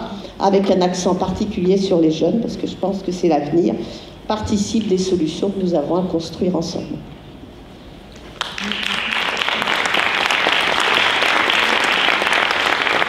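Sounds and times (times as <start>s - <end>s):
audience applauding: 8.4s - 13.0s.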